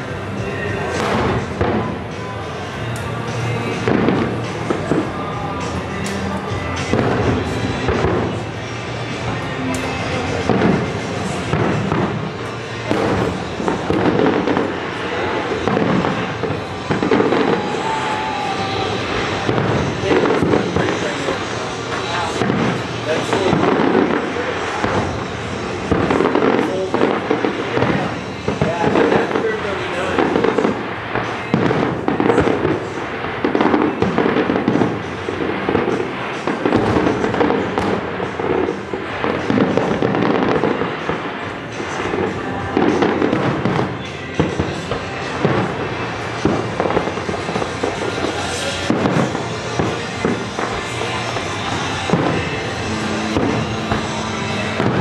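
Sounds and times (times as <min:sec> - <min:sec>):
continuous rumble: 0:00.0 - 0:55.0
fireworks bursting: 0:00.0 - 0:55.0
thin firework whistle: 0:14.1 - 0:22.8, 0:42.7 - 0:55.0.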